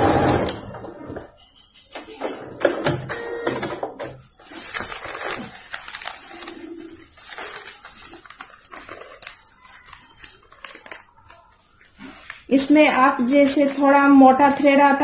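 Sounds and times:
cloth and paper rustling: 4.0s - 15.0s.

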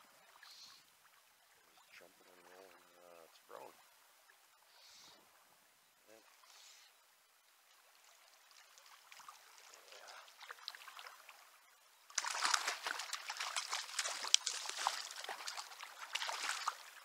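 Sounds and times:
faint trickling water: 0.0s - 17.0s
fish thrashing and splashing: 12.1s - 17.0s.

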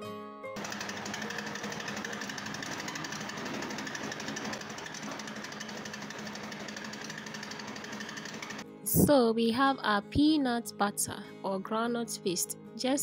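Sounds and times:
grinding mill running: 0.6s - 8.6s.

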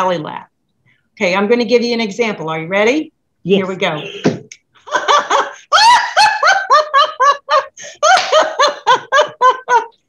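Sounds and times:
woman laughing: 4.9s - 10.0s.

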